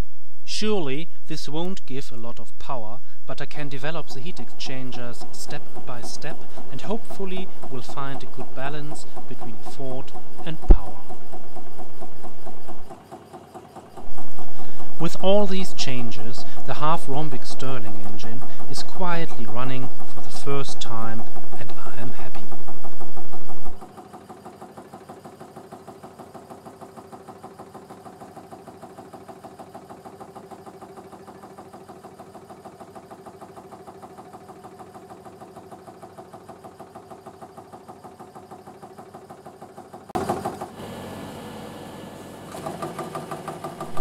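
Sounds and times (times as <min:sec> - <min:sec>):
stirling engine running: 0:01.5 - 0:12.9, 0:14.0 - 0:23.8, 0:43.6 - 0:44.0.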